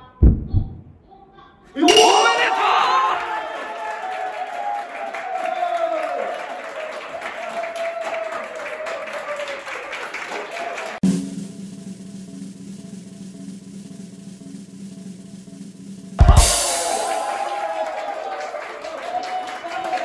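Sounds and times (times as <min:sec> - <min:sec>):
voices: 0:01.1 - 0:03.9
cymbal and bass drum crash: 0:01.9 - 0:03.2, 0:11.0 - 0:17.7
applause: 0:02.5 - 0:11.0, 0:16.8 - 0:20.0
snare drum roll: 0:10.9 - 0:18.0.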